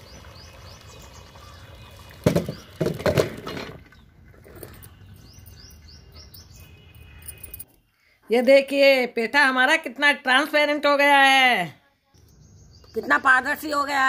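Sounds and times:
small birds chirping: 0.0 - 2.8, 3.8 - 7.6, 12.2 - 14.0
water splashing into a steel colander: 0.0 - 3.4.

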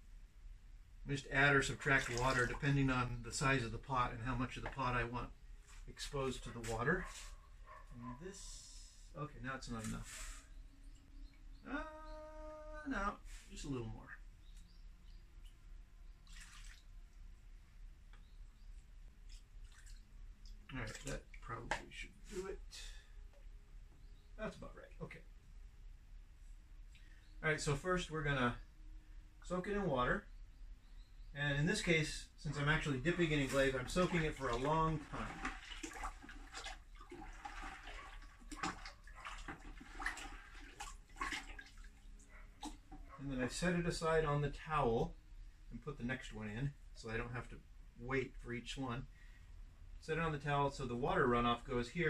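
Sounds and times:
faint water drips: 1.1 - 25.3, 26.8 - 30.2, 31.5 - 43.7
small water splash: 1.6 - 2.9, 16.2 - 17.2, 19.2 - 22.4, 33.2 - 43.0.

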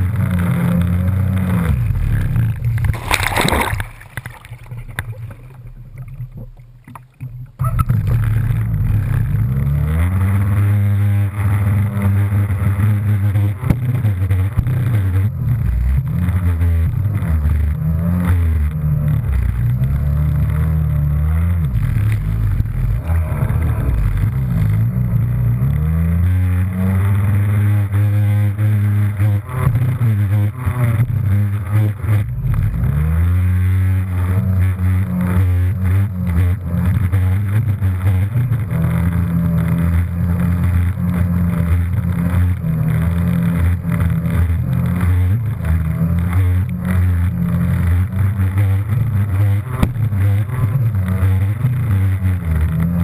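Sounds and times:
jetski engine revving: 0.0 - 53.0
water spray hitting hull: 2.7 - 7.0
loud splash: 2.8 - 6.2.

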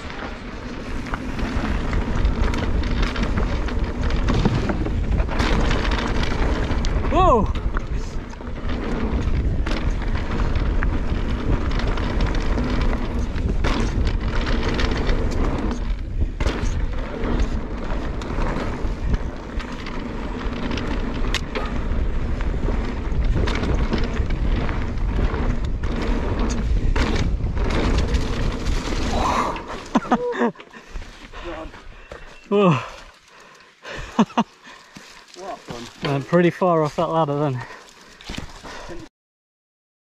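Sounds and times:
wind rush on microphone: 0.0 - 29.9
bike rattling over bumps: 0.0 - 39.1
tyres rolling on loose stones: 0.0 - 39.1.

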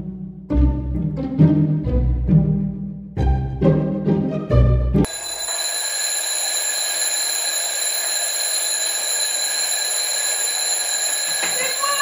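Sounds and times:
alarm clocks ringing: 5.1 - 12.0.

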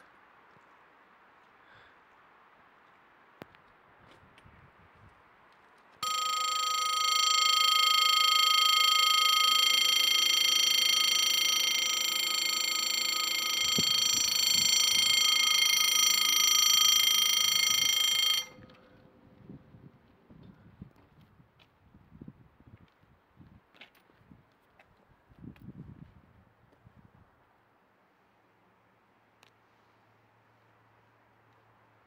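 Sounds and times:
level crossing warning bell: 6.0 - 19.0.

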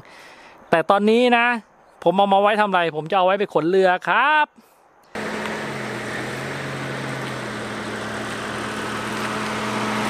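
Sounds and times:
car engine running: 5.2 - 10.0.

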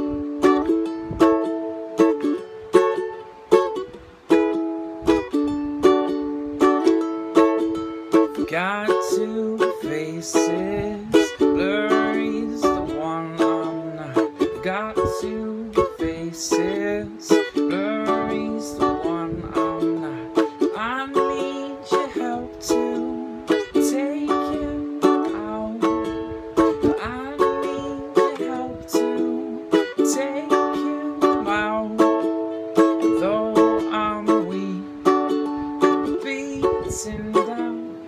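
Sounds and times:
ukulele strumming chords: 0.0 - 38.0
person singing low: 8.3 - 38.0.

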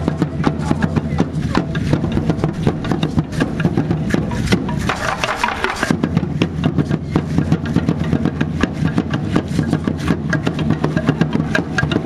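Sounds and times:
steady low throb: 0.0 - 12.0
rattles shaking in fast clatter: 1.4 - 6.1.

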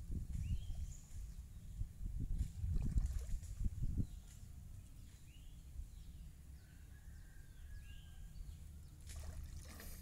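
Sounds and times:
water splash: 9.0 - 10.0.

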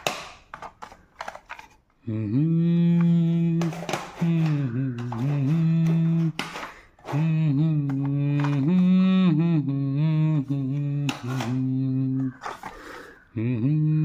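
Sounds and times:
man singing unaccompanied: 2.0 - 12.5, 13.3 - 14.0.

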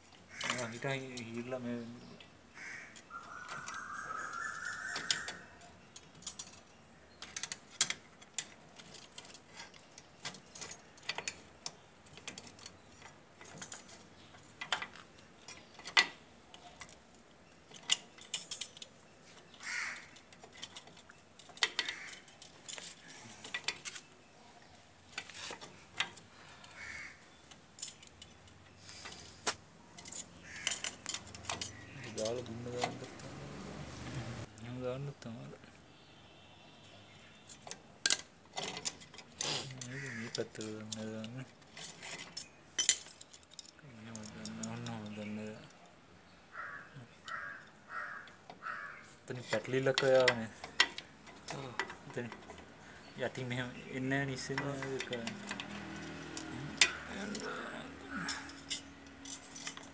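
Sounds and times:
metal clicks and clinks: 3.0 - 17.0, 17.7 - 19.0, 27.4 - 29.2, 29.9 - 33.4, 37.5 - 45.7, 49.4 - 52.7, 54.2 - 59.9.

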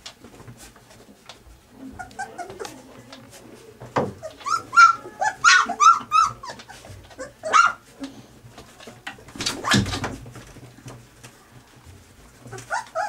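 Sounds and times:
puppies squealing and yelping: 1.8 - 3.0, 4.1 - 7.9, 9.5 - 10.0, 12.3 - 13.0.

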